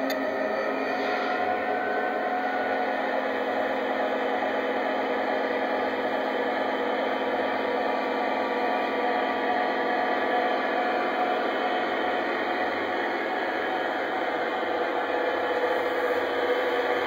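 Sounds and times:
electronic diesel engine rumble: 0.0s - 17.0s.

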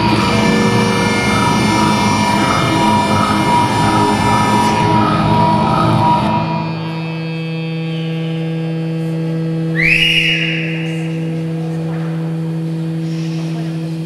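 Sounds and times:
electronic stage music: 0.0s - 13.4s
humming electronic drone: 0.0s - 14.0s.

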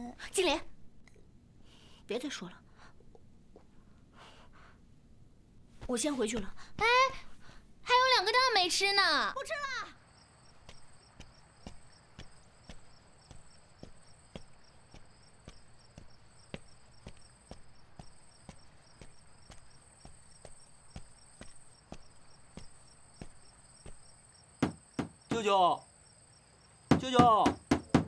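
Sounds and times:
crickets trilling: 7.9s - 28.0s
knocks: 24.6s - 25.5s, 26.9s - 28.0s.

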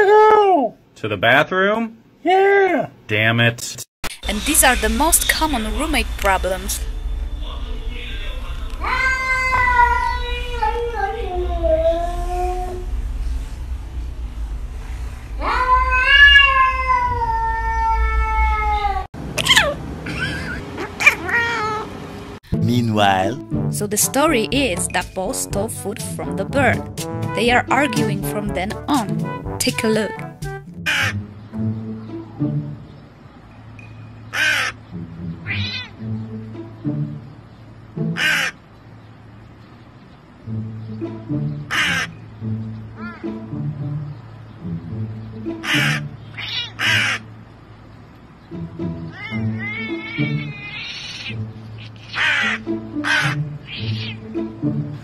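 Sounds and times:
cat meowing: 8.8s - 12.8s, 15.4s - 21.9s, 35.4s - 36.0s, 43.0s - 43.4s, 45.6s - 47.2s, 49.1s - 54.4s
soft background music: 22.5s - 39.2s, 40.3s - 50.7s, 51.3s - 55.0s
crow cawing: 30.9s - 31.2s, 34.3s - 34.8s, 38.2s - 38.6s, 41.7s - 42.2s, 45.6s - 47.3s, 49.2s - 54.2s.

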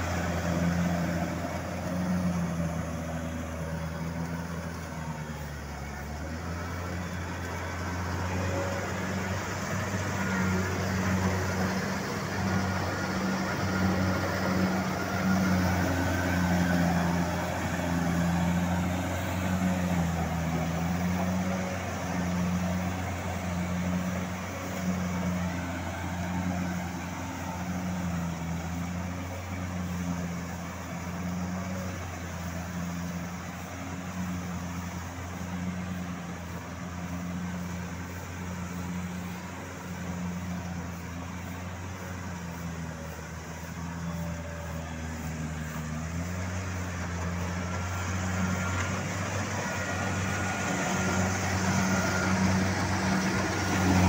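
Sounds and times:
combine harvester engine droning: 0.0s - 54.0s.

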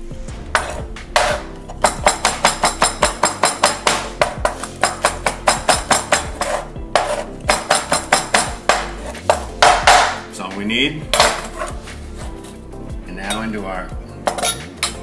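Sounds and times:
background music: 0.0s - 15.0s
knife striking a wooden cutting board: 0.6s - 10.2s.

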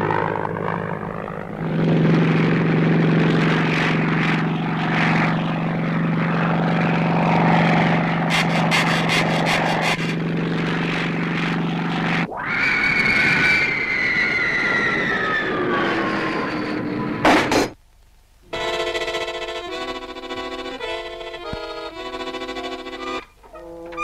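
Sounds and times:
cartoon propeller engine droning: 0.0s - 17.8s, 18.4s - 24.0s
falling whistle: 12.3s - 16.8s.

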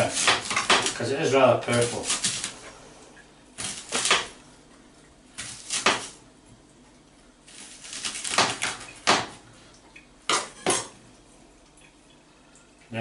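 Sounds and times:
knife chopping on board: 0.0s - 1.0s, 3.6s - 4.4s, 5.4s - 6.2s, 7.7s - 9.4s.

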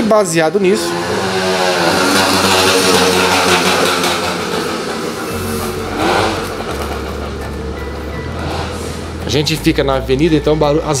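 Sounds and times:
motor vehicles passing: 0.0s - 11.0s.

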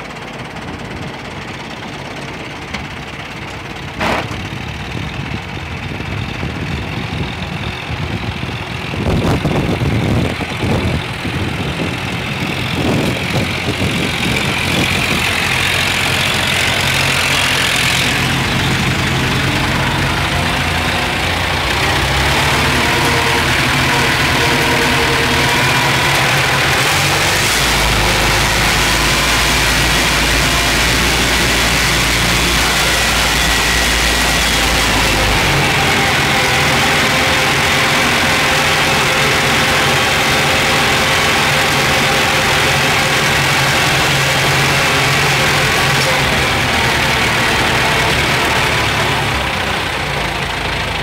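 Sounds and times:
tractor diesel engine droning: 0.0s - 51.0s.

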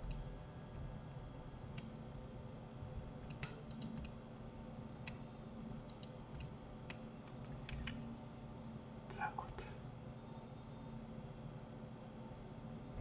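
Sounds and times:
faint steady hum: 0.0s - 13.0s
keyboard and mouse clicks: 3.3s - 4.2s, 5.9s - 8.0s.

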